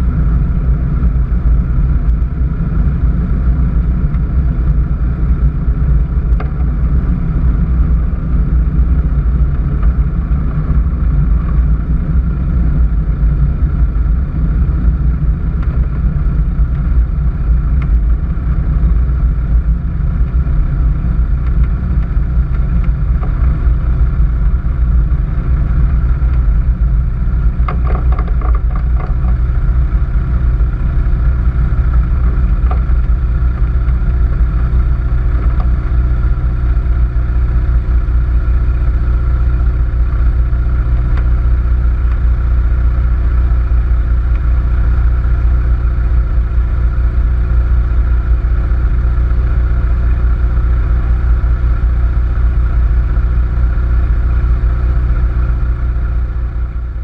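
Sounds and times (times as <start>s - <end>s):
aircraft engine and propeller: 0.0s - 57.0s
prop wash rumble on microphone: 0.0s - 57.0s
short rattle: 27.5s - 29.8s.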